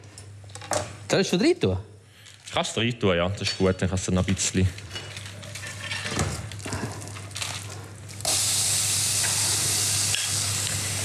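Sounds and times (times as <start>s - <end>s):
onions sizzling in a frying pan: 8.2s - 11.0s.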